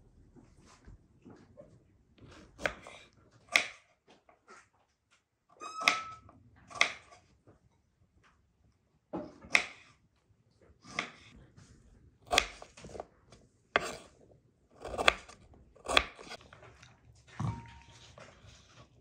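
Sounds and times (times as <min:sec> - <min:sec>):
knife cutting on wooden board: 0:02.3 - 0:03.8, 0:10.9 - 0:11.4, 0:12.3 - 0:13.1, 0:13.8 - 0:14.2, 0:14.8 - 0:16.5.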